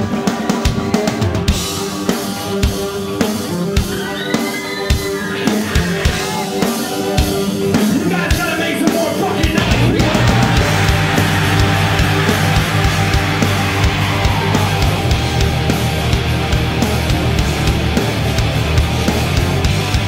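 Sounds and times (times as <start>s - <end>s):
rock band playing live: 0.0s - 20.0s
drum hits: 9.5s - 19.6s.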